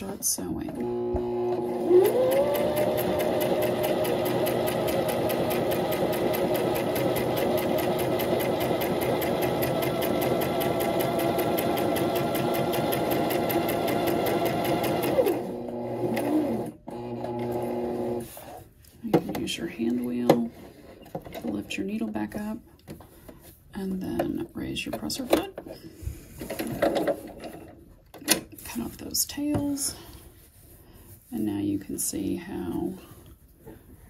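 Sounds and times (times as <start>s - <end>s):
sewing machine motor whine: 0.8s - 18.2s.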